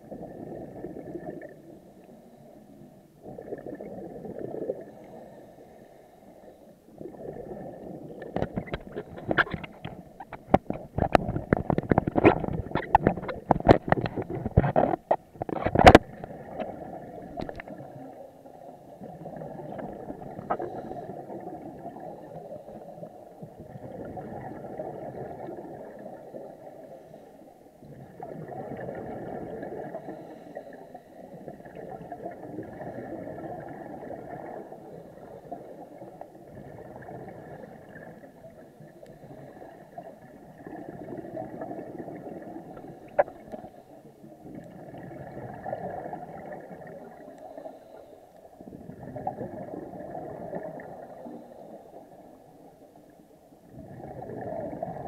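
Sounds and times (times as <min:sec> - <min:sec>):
muffled underwater bubbling exhalations: 0:00.0 - 0:02.4, 0:03.1 - 0:05.4, 0:06.9 - 0:27.0, 0:27.8 - 0:53.0, 0:53.6 - 0:55.0
sharp clicks and knocks: 0:08.2 - 0:16.1.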